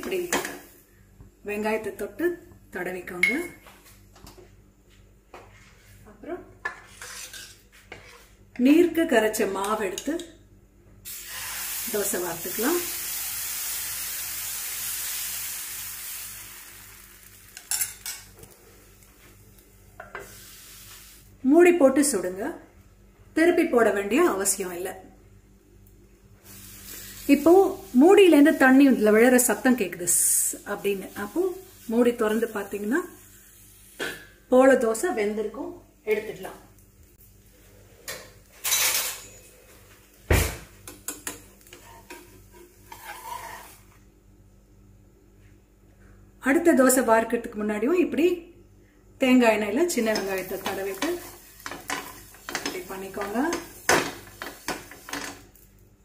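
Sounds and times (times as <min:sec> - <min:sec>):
batter sizzling on a hot pan: 0:11.0 - 0:21.4, 0:26.4 - 0:34.0, 0:41.2 - 0:44.0, 0:49.9 - 0:55.9
utensils knocking on a pan: 0:50.1 - 0:55.4.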